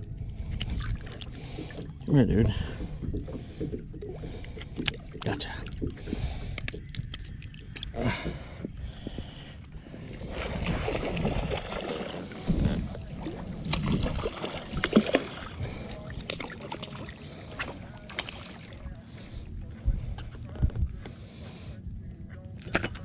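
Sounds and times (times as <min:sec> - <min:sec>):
water: 0:00.0 - 0:23.0
wind: 0:00.0 - 0:23.0
fishing tackle knocks and clicks: 0:02.8 - 0:08.0, 0:22.6 - 0:23.0.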